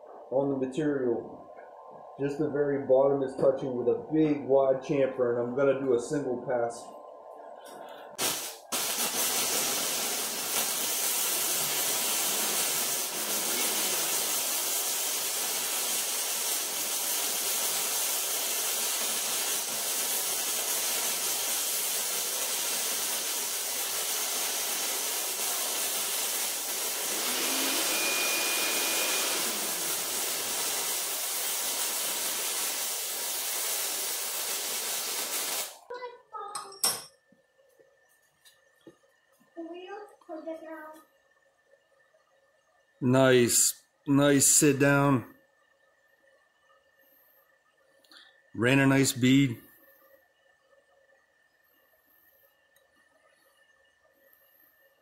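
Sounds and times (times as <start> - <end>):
welding arc sizzling hiss: 7.6 - 35.9, 43.3 - 45.2, 48.2 - 50.0.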